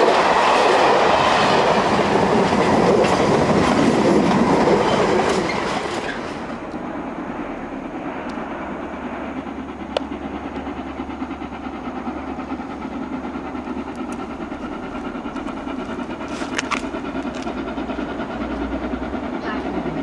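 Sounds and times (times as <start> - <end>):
steam locomotive rumbling: 0.0 - 20.0.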